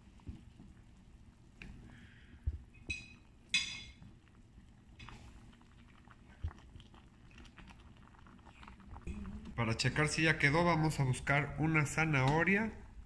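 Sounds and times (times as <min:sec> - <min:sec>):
spoon stirring soup in a pot: 0:02.6 - 0:09.1.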